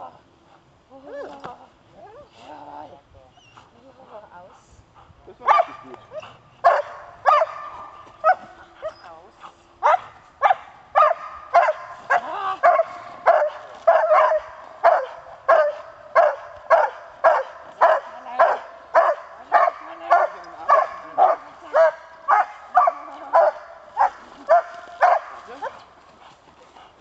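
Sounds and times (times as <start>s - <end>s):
dog barking: 5.4s - 8.9s, 9.8s - 25.8s.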